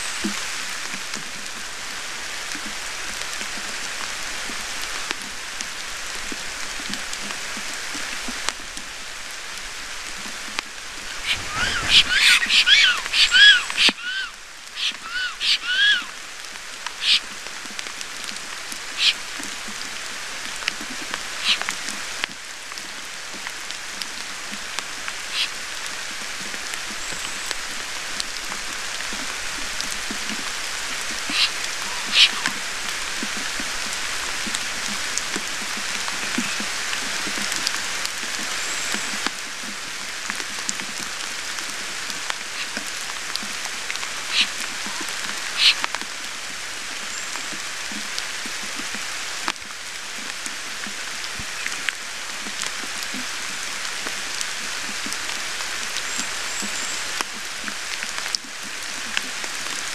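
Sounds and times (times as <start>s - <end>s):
rain pattering: 0.0s - 59.9s
bird landing rush: 10.8s - 16.1s
wheezy bird whistles: 11.2s - 16.1s, 31.3s - 32.5s
sharp drip ticks: 16.8s - 18.4s, 19.0s - 19.8s, 31.0s - 32.6s, 44.3s - 46.1s.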